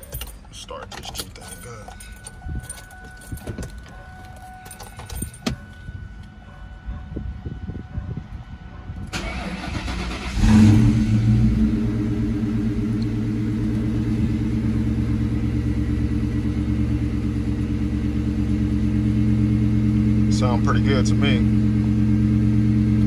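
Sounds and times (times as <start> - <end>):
engine starter cranking: 9.1 - 11.2
car engine idling: 9.1 - 23.0.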